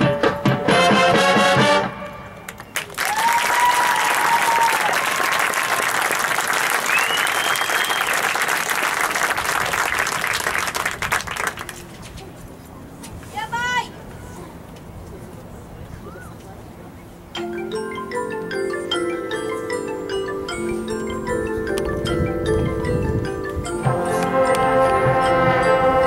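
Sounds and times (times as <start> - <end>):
marching band chord: 0.0 - 2.4, 23.4 - 26.0
crowd applauding and cheering: 2.5 - 11.8.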